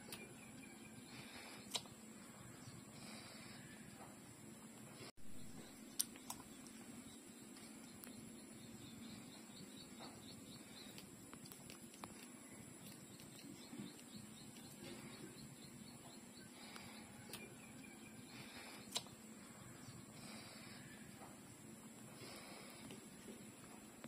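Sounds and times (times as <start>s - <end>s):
faint high bird chirps: 0.0s - 4.1s, 12.2s - 21.3s.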